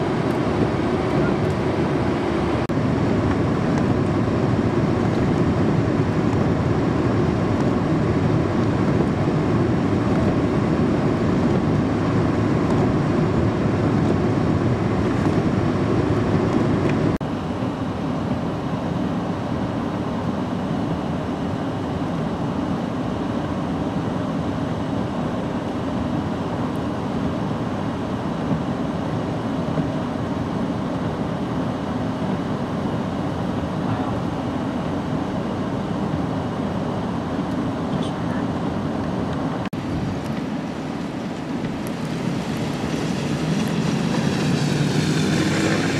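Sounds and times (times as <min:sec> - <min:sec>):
wind buffeting microphone: 0:00.0 - 0:17.2
blizzard wind rushing: 0:00.0 - 0:37.9, 0:38.5 - 0:45.9.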